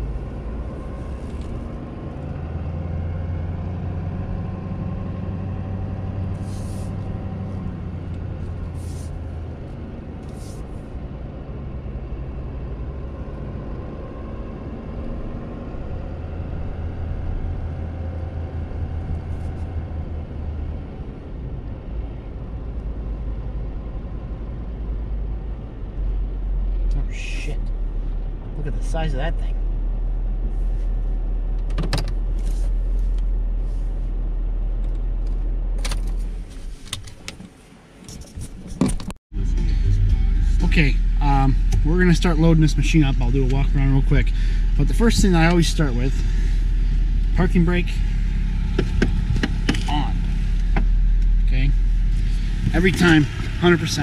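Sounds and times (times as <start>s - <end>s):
road noise: 0.0s - 54.0s
truck engine hum: 0.0s - 54.0s.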